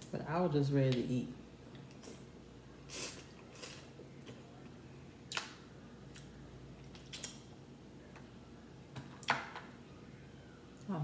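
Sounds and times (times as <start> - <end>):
faint steady hum: 0.0 - 11.0
clicks and smacks of eating crab: 5.3 - 7.4.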